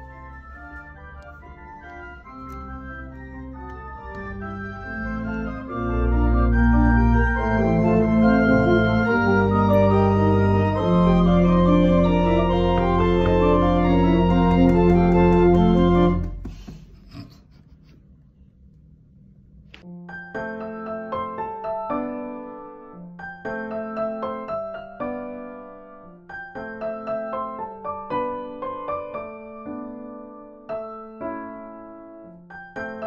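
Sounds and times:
pipe organ chords: 0.0 - 16.4.

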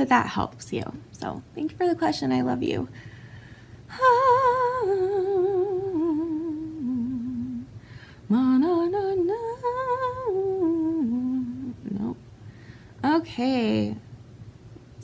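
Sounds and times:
woman breathing: 2.9 - 4.0, 7.7 - 8.3, 12.4 - 13.0
woman humming a slow tune: 3.9 - 7.7, 8.3 - 12.2.

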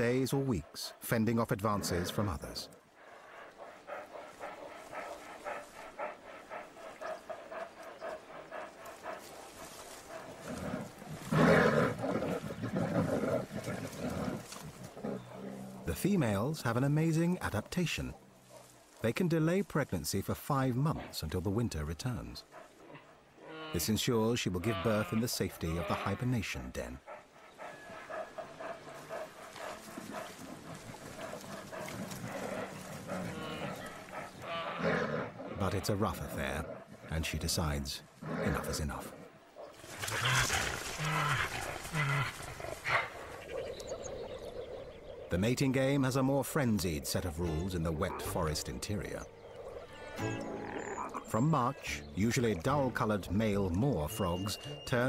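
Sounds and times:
bears growling and roaring: 0.0 - 55.0.

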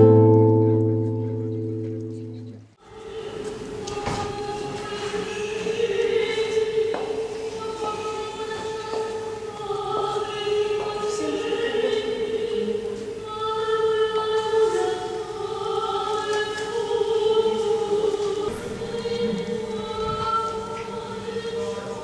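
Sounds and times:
choir singing a slow chant: 2.8 - 22.0.

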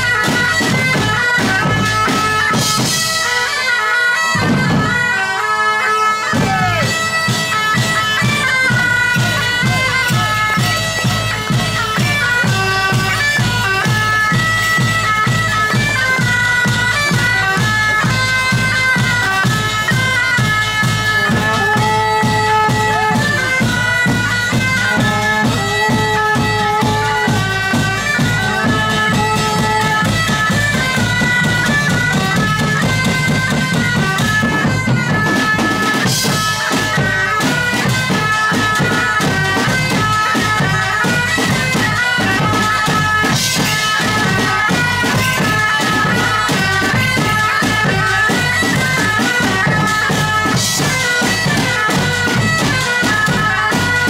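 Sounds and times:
steady drum beat: 0.0 - 5.4, 6.0 - 54.0
bagpipes playing folk melody: 0.0 - 54.0.

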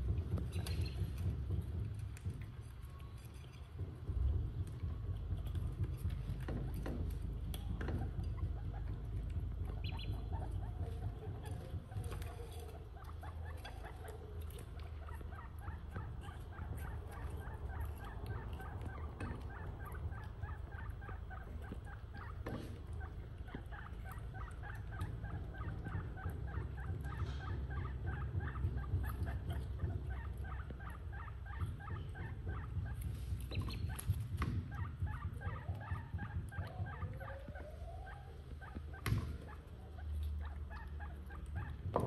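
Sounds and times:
small animals squeaky chirps: 0.2 - 1.8, 5.3 - 42.0.

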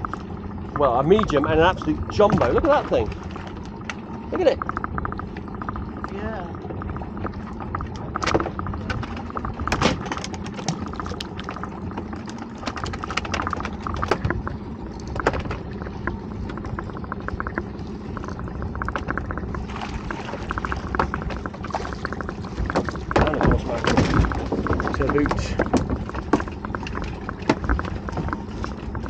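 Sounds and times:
water splashing against boat hull: 0.8 - 29.0
sharp clicks and knocks: 3.8 - 6.2, 7.2 - 14.4, 15.1 - 19.7, 20.4 - 29.0.

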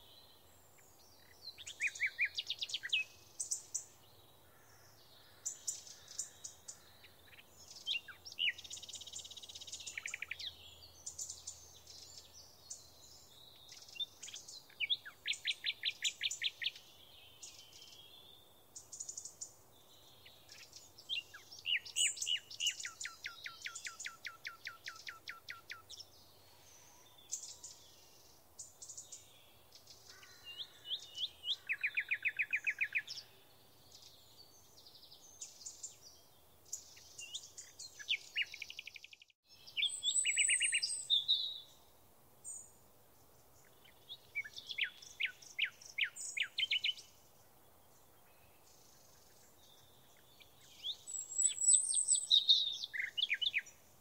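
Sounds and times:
birds chirping and whistling: 36.7 - 41.6, 48.6 - 53.8.

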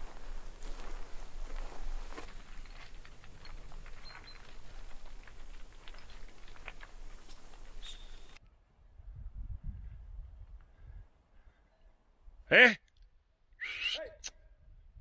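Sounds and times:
stones clicking and clattering: 2.2 - 8.4.

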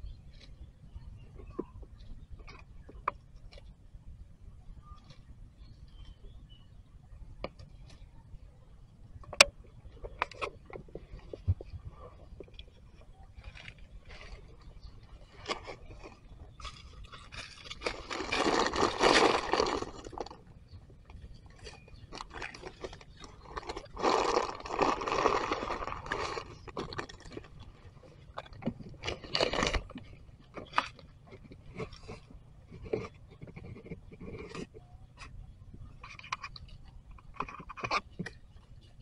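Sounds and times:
sharp crackles and clicks: 15.2 - 38.4
dry leaves crunching: 15.3 - 20.5, 21.6 - 27.8.

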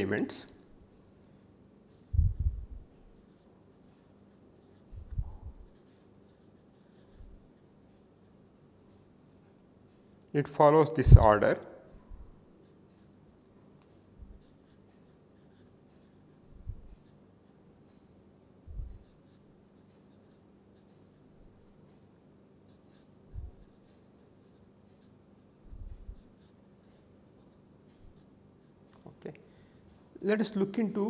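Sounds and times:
low steady hum: 0.0 - 31.0
dull low thumps: 2.1 - 2.9
marker scratching on paper: 2.4 - 7.7, 14.3 - 17.6, 18.8 - 21.6, 22.7 - 28.9.

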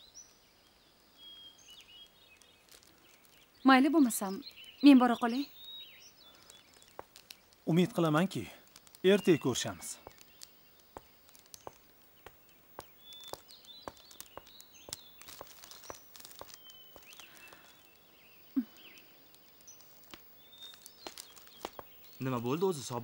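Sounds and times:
birds chirping: 0.0 - 23.0
footsteps on a path: 6.0 - 18.0, 18.6 - 22.4.

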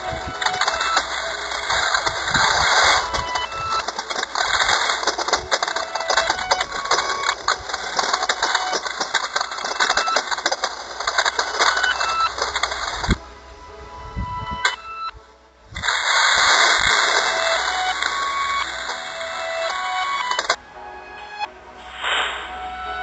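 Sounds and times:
shredder crackling and grinding: 0.0 - 13.2.

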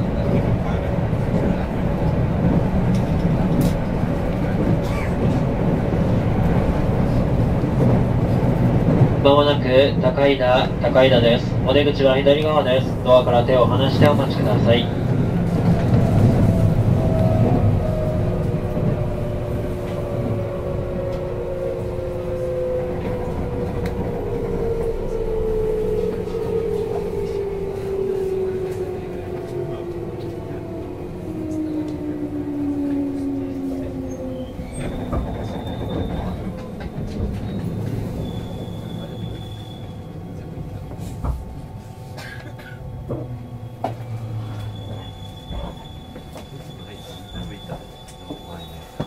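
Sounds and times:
train motor whine: 13.6 - 49.0
high brake squeal: 34.1 - 36.7, 37.3 - 40.2, 42.4 - 49.0.

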